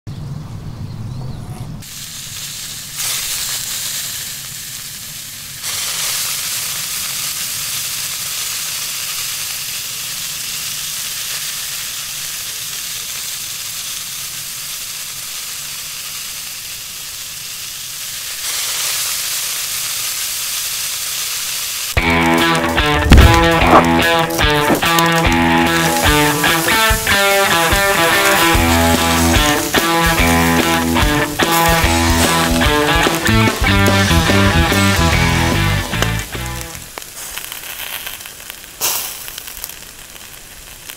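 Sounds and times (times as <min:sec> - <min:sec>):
beans sizzling on grill: 0:01.8 - 0:40.9
electric guitar music: 0:22.0 - 0:37.0.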